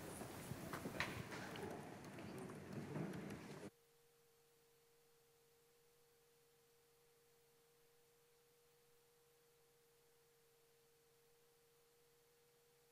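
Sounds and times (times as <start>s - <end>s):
audience moving about: 0.0s - 3.7s
faint steady tone: 3.5s - 12.9s.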